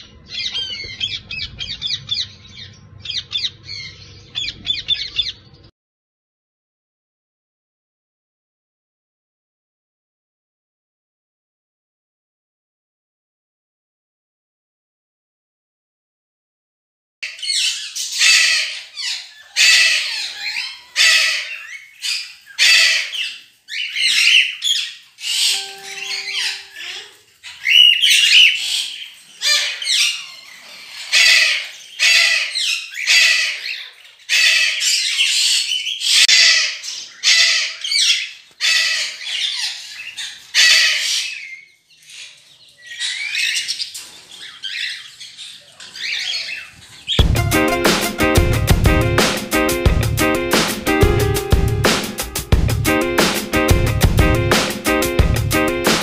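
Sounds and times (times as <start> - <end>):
parrot squawking: 17.2 - 43.8.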